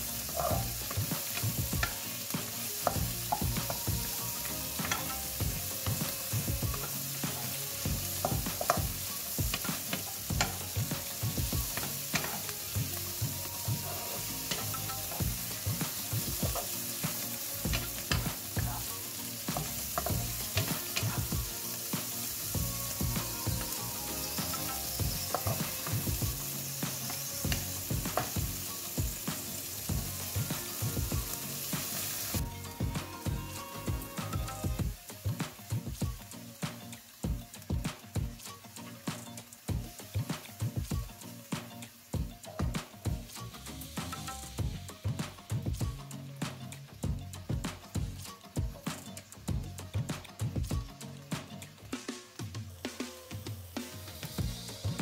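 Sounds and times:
spatula scraping a pan: 0.0 - 13.0
food sizzling in a wok: 0.0 - 55.0.

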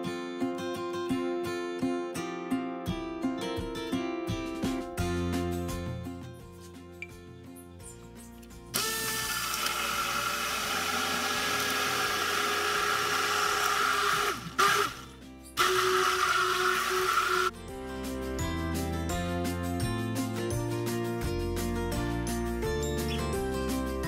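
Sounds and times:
quiet background music: 0.1 - 9.3
hand blender running: 8.8 - 17.5.

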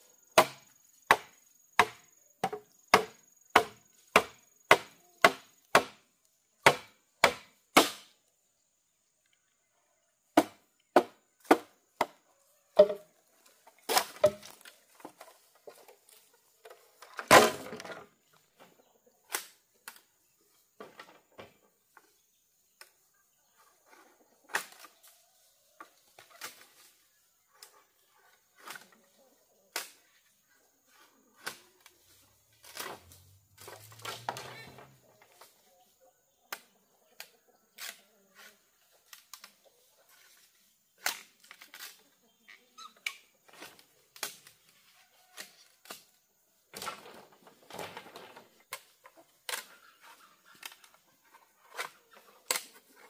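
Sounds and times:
hand tool chopping bamboo: 0.4 - 6.0, 6.6 - 8.1, 12.8 - 13.0, 13.9 - 15.1.

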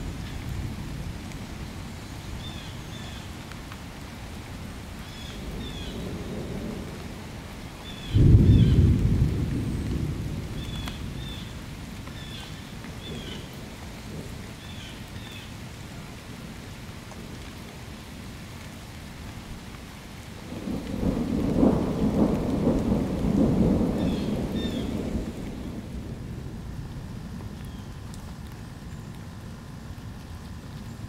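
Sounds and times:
steady rain: 0.0 - 31.0
thunder rumbling: 5.3 - 14.7, 20.4 - 30.0.

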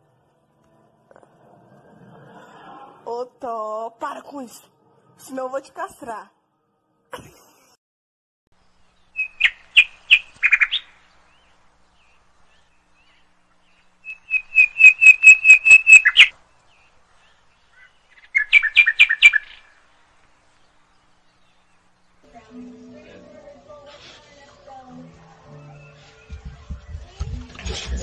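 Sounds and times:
parrot chirping whistle-like notes: 14.0 - 16.3.

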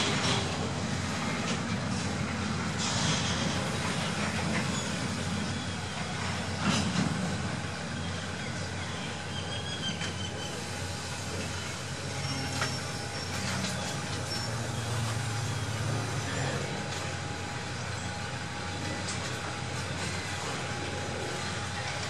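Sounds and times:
diesel locomotive running: 0.0 - 22.0
faint high wheel squeals: 7.8 - 18.3.

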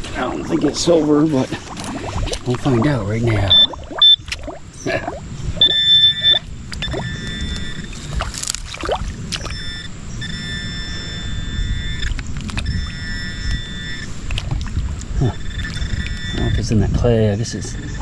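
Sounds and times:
creek water sloshing: 0.0 - 5.2, 7.9 - 9.6
metal detector high tone: 2.7 - 4.3, 4.9 - 8.2, 9.4 - 14.1, 15.3 - 18.0.

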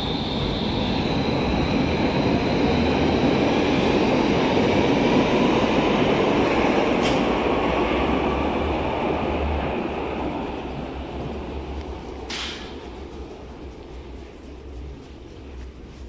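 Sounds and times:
train wheels rumbling on rails: 0.0 - 16.0
sharp hiss: 12.0 - 15.7.

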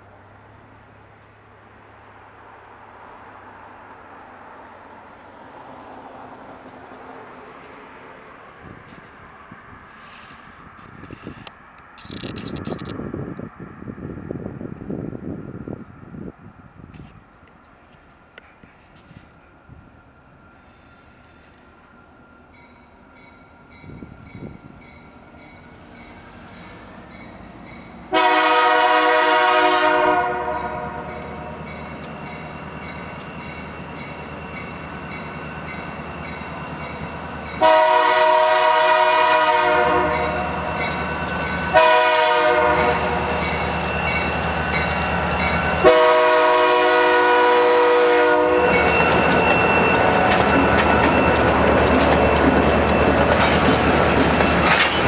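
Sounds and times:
locomotive engine rumble: 23.6 - 55.0
locomotive air horn: 28.1 - 31.6, 37.6 - 40.7, 41.6 - 43.6, 45.7 - 50.2
train wheels clattering on rails: 42.7 - 46.0, 48.6 - 55.0.

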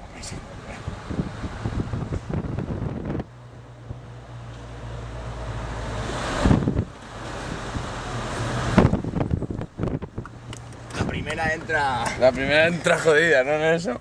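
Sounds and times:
engine low hum: 0.0 - 12.9
wind buffeting microphone: 0.7 - 4.0, 6.0 - 12.6.

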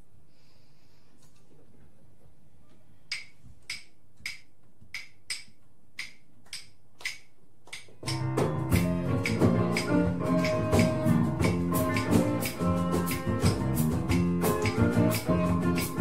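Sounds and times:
percussion clicks: 3.1 - 11.0
band playing: 8.1 - 16.0.

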